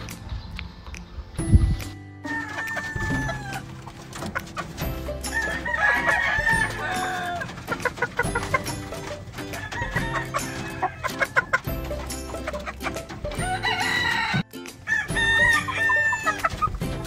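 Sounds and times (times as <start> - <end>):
background music with steady beat: 0.0 - 17.0
rooster crowing: 5.3 - 7.5.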